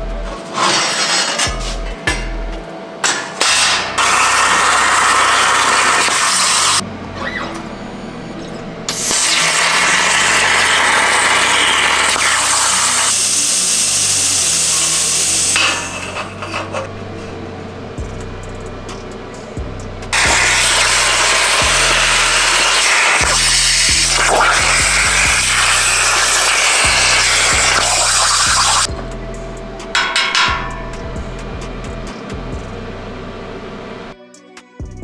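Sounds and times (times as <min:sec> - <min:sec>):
plasma torch cutting hiss: 0:03.4 - 0:06.8, 0:08.9 - 0:16.8, 0:20.1 - 0:28.9.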